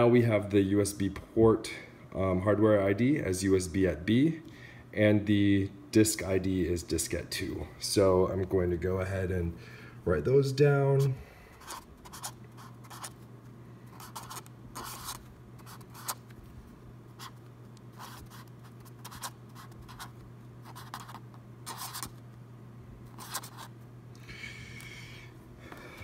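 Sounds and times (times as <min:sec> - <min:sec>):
steady low hum: 0:00.0 - 0:26.0
pen scratching on paper: 0:11.6 - 0:13.2, 0:14.0 - 0:16.2, 0:18.0 - 0:22.1, 0:23.1 - 0:23.7.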